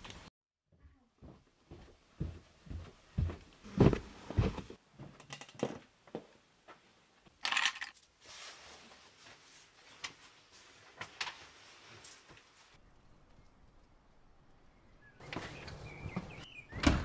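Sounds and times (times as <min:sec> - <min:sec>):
footsteps on carpeted stairs: 0:00.0 - 0:06.9.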